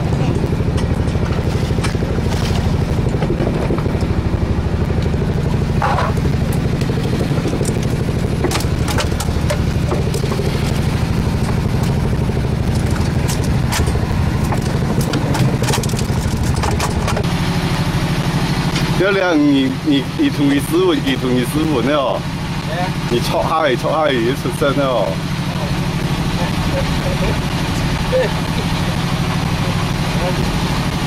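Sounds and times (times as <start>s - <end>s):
boat engine droning: 0.0s - 31.0s
fishing gear clicks and knocks: 5.8s - 12.0s, 12.7s - 17.3s.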